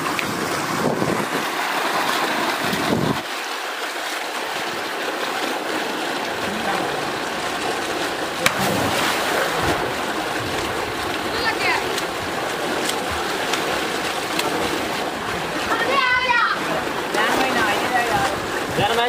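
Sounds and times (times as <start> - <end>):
swimmers splashing: 0.0 - 19.0
water pouring into a tank: 0.0 - 19.0.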